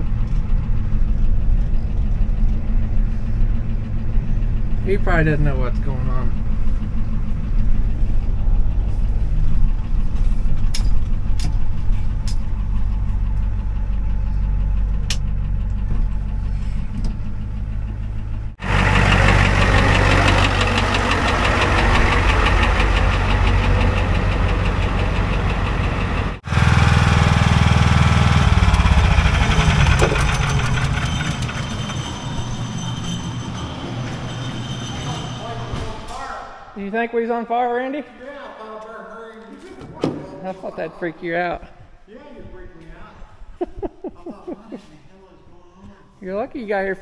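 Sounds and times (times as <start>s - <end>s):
diesel engine running: 0.0s - 35.9s.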